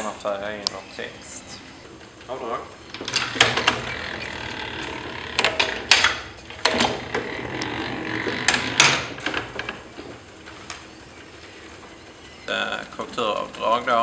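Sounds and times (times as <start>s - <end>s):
press cylinder rolling rumble: 1.9s - 14.0s
press mechanism clanking: 2.9s - 10.2s.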